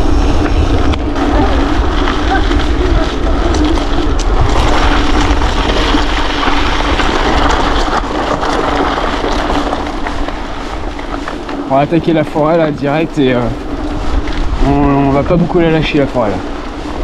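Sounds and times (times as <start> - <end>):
bike tyres rattling over stones: 0.0 - 17.0
wind rushing over microphone: 0.0 - 17.0.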